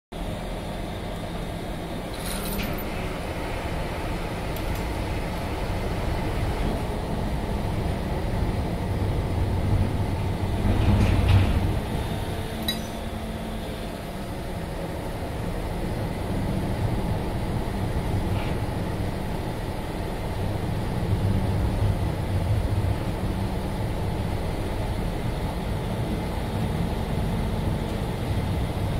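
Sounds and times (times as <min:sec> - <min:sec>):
ferry engine rumbling: 0:00.1 - 0:28.9
high metallic clinks: 0:12.6 - 0:13.0.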